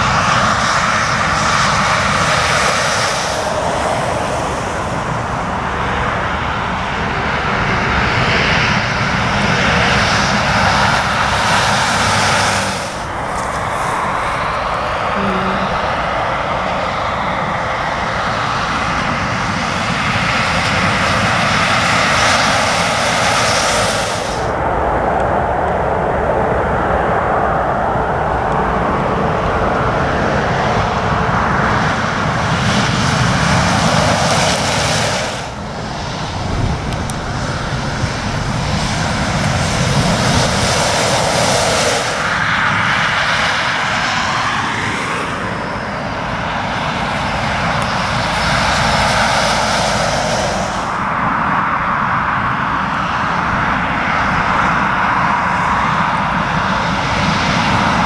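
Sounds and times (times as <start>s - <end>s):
diesel engines roaring: 0.0s - 58.0s
lorries driving past: 0.0s - 58.0s
tyre noise on wet road: 9.2s - 15.2s.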